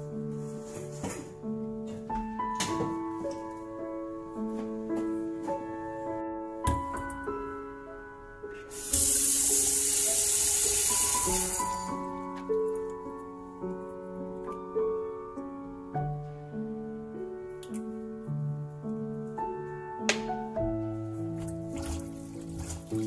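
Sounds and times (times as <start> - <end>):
soft piano music: 0.0 - 23.0
water running into steel sink: 8.7 - 12.1, 21.5 - 23.0.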